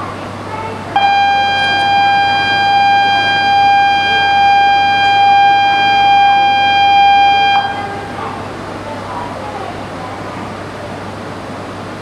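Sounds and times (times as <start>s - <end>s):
station departure bell tone: 0.9s - 8.4s.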